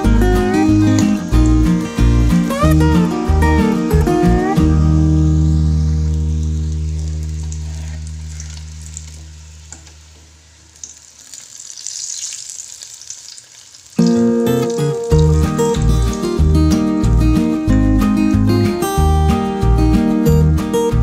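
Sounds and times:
guitar music: 0.0s - 9.7s, 14.0s - 21.0s
oil sizzling: 0.0s - 19.6s.

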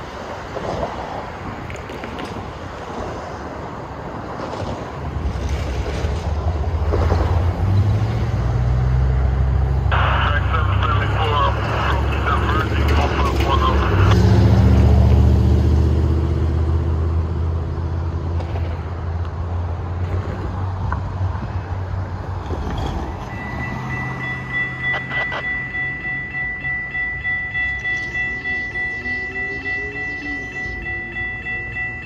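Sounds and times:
diesel locomotive engine rumbling: 0.0s - 32.0s
railroad crossing bell ringing: 23.2s - 32.0s.

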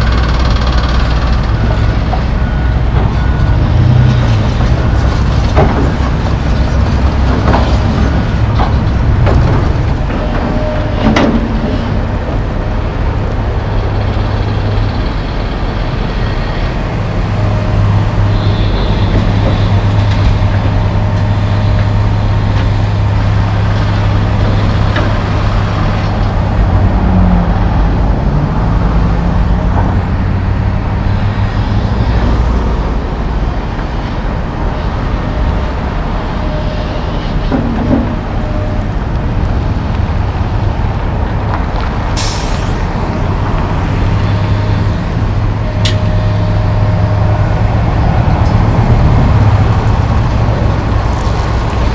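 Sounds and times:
dump truck idling: 0.0s - 51.9s
excavator diesel engine working: 0.0s - 51.9s.

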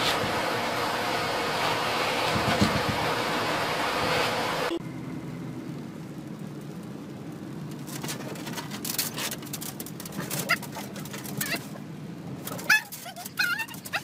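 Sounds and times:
dog claws scrabbling on plastic: 7.9s - 11.8s
dog whimpering: 10.4s - 11.8s, 12.5s - 14.0s.

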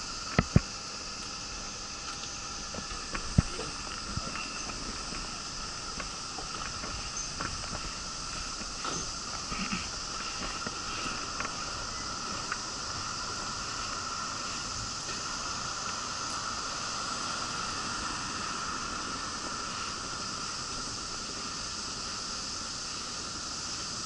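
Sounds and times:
steady hiss: 0.0s - 24.0s.

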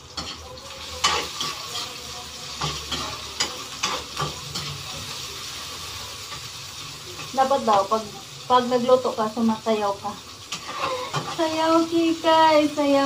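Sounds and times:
food sizzling in oil: 0.0s - 13.0s
spatula scraping a pan: 0.2s - 7.8s, 10.4s - 11.6s.

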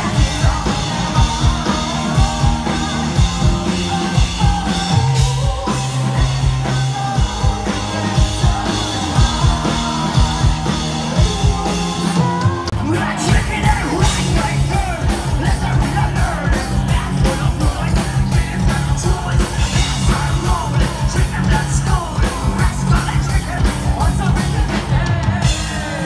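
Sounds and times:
woman singing: 0.0s - 14.8s
bass guitar notes: 0.0s - 26.0s.

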